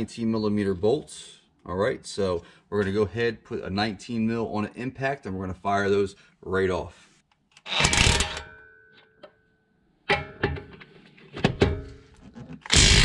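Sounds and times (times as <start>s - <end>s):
impact wrench motor whirring: 7.6s - 8.4s, 12.7s - 13.0s.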